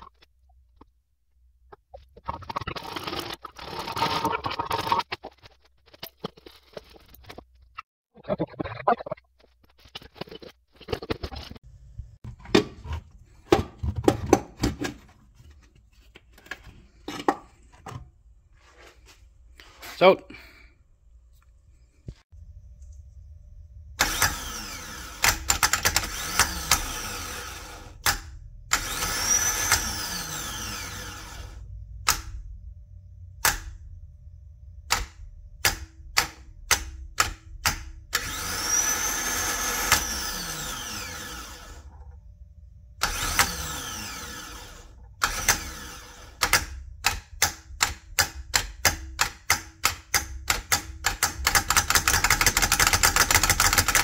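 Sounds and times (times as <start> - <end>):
short starter motor bursts: 24.0 - 28.0, 43.0 - 46.4
starter motor whine: 24.0 - 31.6, 38.2 - 42.1, 43.0 - 46.4.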